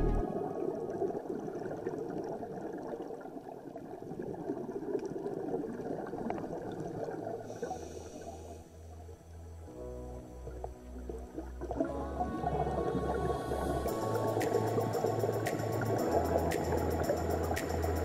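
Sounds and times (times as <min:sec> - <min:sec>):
low pulsing bass: 0:00.0 - 0:00.2, 0:12.0 - 0:18.0
underwater bubbling hiss: 0:00.9 - 0:09.1, 0:10.5 - 0:18.0.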